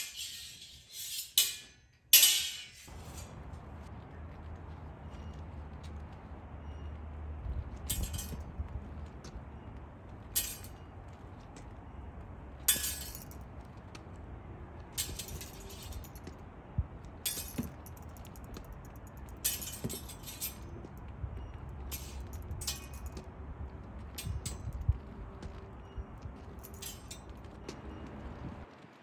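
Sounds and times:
blade scraping along blade: 0.0s - 3.4s
steel blades clinking: 0.0s - 3.4s, 7.9s - 8.5s, 10.3s - 10.9s, 12.6s - 13.5s, 15.0s - 16.3s, 17.2s - 20.9s, 21.8s - 23.3s, 24.1s - 24.8s, 26.4s - 27.6s.

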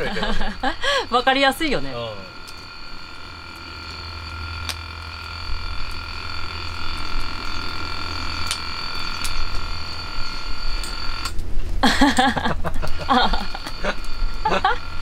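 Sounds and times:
pot lid buzzing from steam: 0.0s - 15.0s
sharp clicks: 2.4s - 11.5s.

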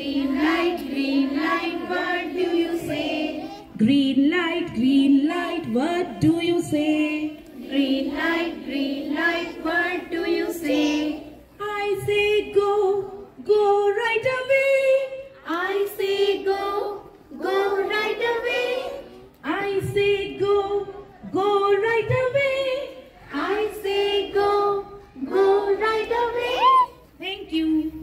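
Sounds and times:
young children singing: 0.0s - 3.8s, 7.3s - 13.4s, 15.4s - 27.0s
woman singing into a microphone: 3.7s - 7.4s, 11.6s - 15.6s, 19.4s - 23.1s.

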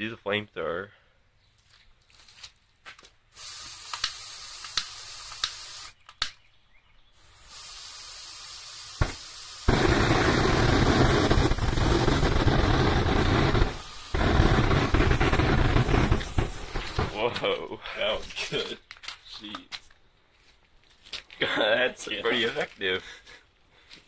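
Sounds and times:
aerosol spray can hissing: 3.3s - 6.0s, 7.2s - 17.2s
loud rushing flame: 7.2s - 17.3s.

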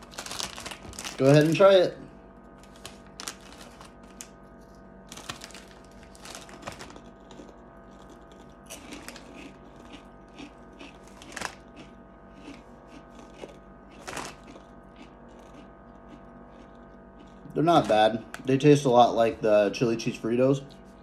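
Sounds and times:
foil chip bag crinkling: 0.0s - 16.8s
chewing and crunching chips: 0.0s - 19.2s
faint steady hum: 0.0s - 21.0s.

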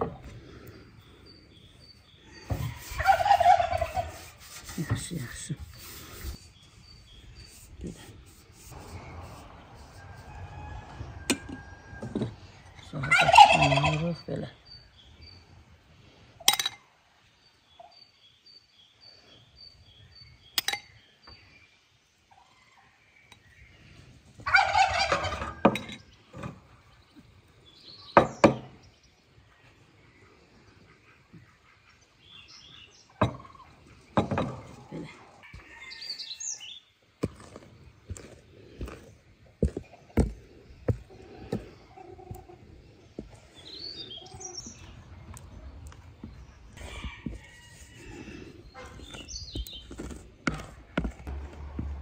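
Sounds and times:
turkey gobbling: 2.6s - 4.2s, 12.9s - 14.2s, 24.4s - 25.6s.

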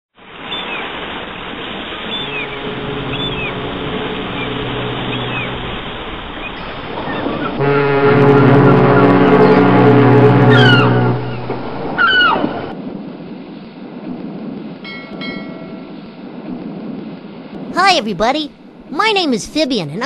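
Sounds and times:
sea waves washing: 0.2s - 20.0s
seagull cries: 2.1s - 3.7s, 12.0s - 12.6s
low sustained music tones: 2.3s - 6.1s.

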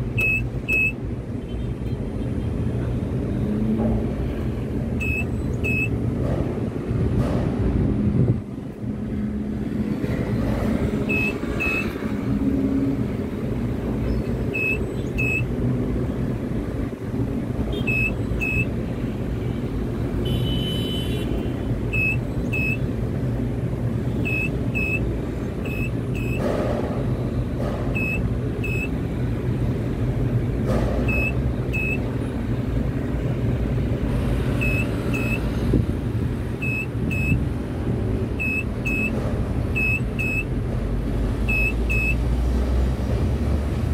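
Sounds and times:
crane drive hum and rumble: 0.0s - 43.9s
electronic double beep: 5.0s - 5.9s, 11.0s - 12.0s, 14.5s - 15.5s, 28.0s - 28.9s, 31.1s - 32.0s, 34.6s - 35.5s, 36.6s - 37.4s, 38.4s - 39.2s, 41.5s - 42.2s.

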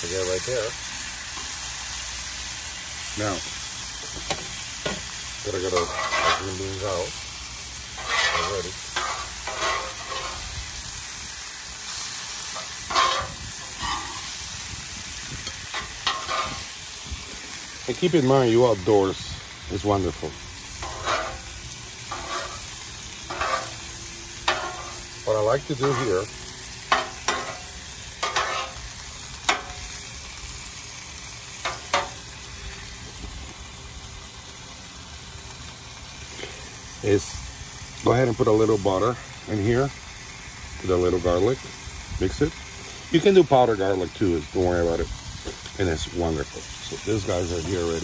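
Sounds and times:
beans sizzling in oil: 0.0s - 48.0s
metal tongs scraping griddle: 4.2s - 7.2s, 7.8s - 10.7s, 11.8s - 19.2s, 19.8s - 30.1s, 31.6s - 32.2s.

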